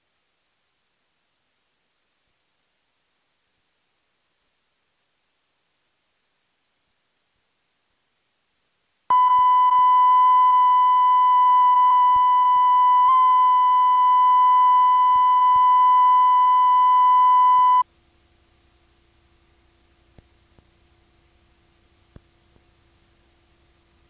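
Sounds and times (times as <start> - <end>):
faint hum: 0.0 - 24.0
steady test tone beep: 9.1 - 17.8.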